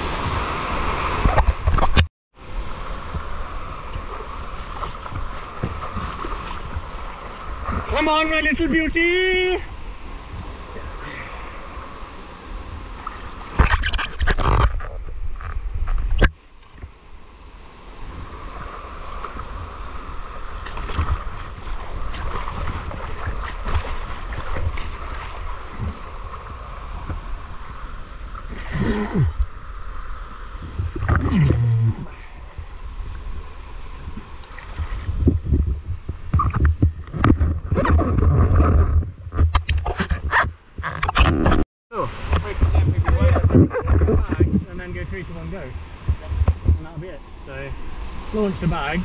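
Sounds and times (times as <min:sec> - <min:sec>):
stream water rushing: 0:00.0 - 0:41.3, 0:41.9 - 0:49.0
wind buffeting microphone: 0:30.5 - 0:40.8, 0:42.0 - 0:49.0.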